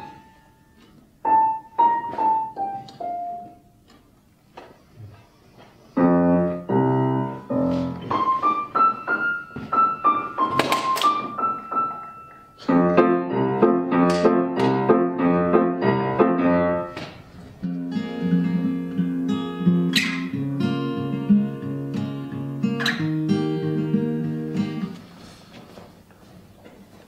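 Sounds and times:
grand piano playing: 0:00.0 - 0:03.7, 0:06.0 - 0:17.0
acoustic guitar strumming: 0:17.6 - 0:25.0.

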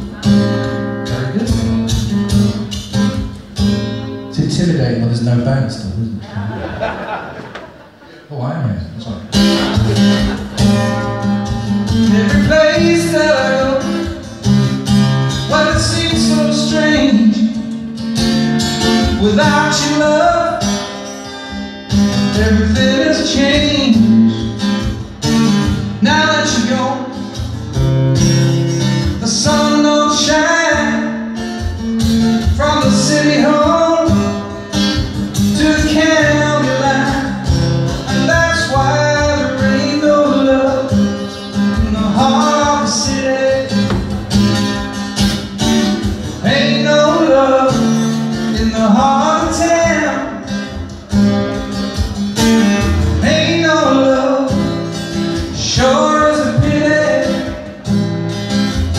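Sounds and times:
man singing: 0:00.0 - 0:02.7, 0:10.0 - 0:18.0, 0:18.8 - 0:20.9, 0:22.2 - 0:24.6, 0:25.8 - 0:27.5, 0:28.8 - 0:31.4, 0:32.4 - 0:44.6, 0:45.8 - 0:51.0, 0:52.6 - 0:57.8
amplified acoustic guitar: 0:00.0 - 0:58.9.

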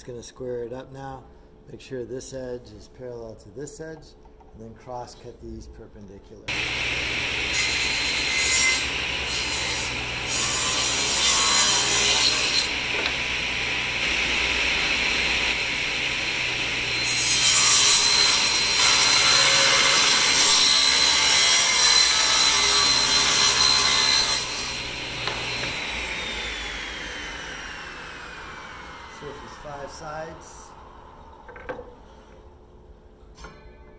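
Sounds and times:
table saw cutting wood: 0:06.5 - 0:31.4
saw blade winding down whine: 0:24.4 - 0:31.5.

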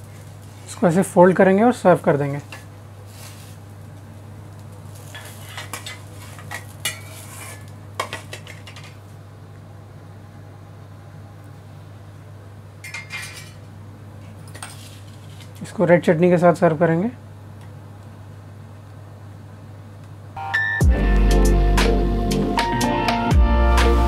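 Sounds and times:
steady low hum: 0:00.0 - 0:24.0
metal utensil scraping and clinking: 0:05.0 - 0:09.0, 0:12.8 - 0:13.6.

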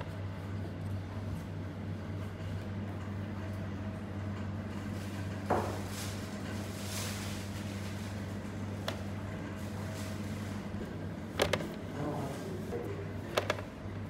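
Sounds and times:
kitchen equipment hum: 0:00.0 - 0:14.0.

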